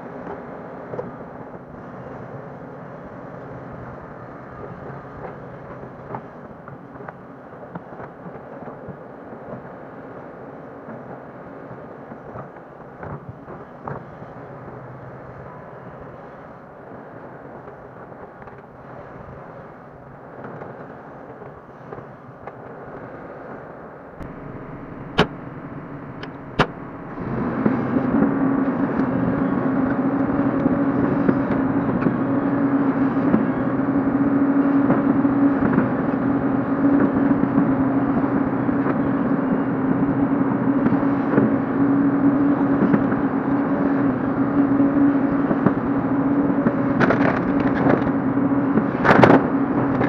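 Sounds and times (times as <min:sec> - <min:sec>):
excavator diesel engine running: 0:00.2 - 0:07.0, 0:24.2 - 0:50.0.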